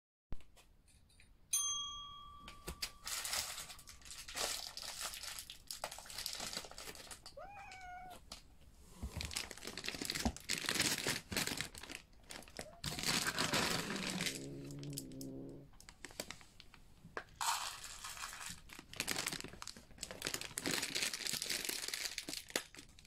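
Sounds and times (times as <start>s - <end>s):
rustling: 2.9s - 16.8s
cat meowing: 7.3s - 8.2s, 12.5s - 15.7s
cat hissing: 7.4s - 8.2s, 12.6s - 15.7s.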